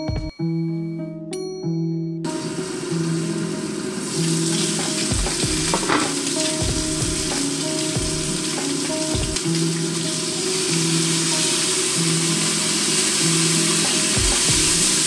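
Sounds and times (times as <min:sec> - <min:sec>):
hot oil sizzling in a pan: 0:02.3 - 0:15.0
pan knocks: 0:04.8 - 0:07.4.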